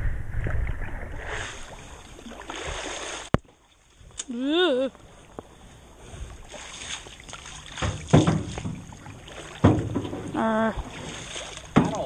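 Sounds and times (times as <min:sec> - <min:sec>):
paddle strokes splashing water: 0:00.3 - 0:04.0, 0:05.0 - 0:12.0
thuds on aluminum canoe: 0:07.7 - 0:12.0.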